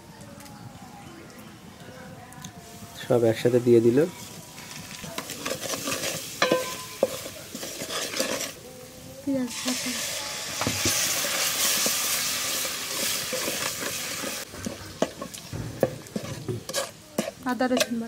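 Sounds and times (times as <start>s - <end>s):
spices sizzling in oil: 2.6s - 18.0s.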